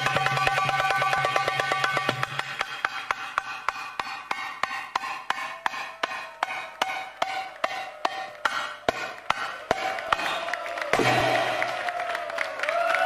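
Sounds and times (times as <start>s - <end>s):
hand drum strokes: 0.0s - 10.4s.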